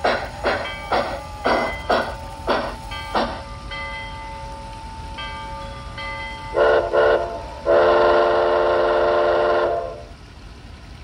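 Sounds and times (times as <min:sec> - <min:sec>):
model locomotive steam whistle: 0:06.5 - 0:10.2.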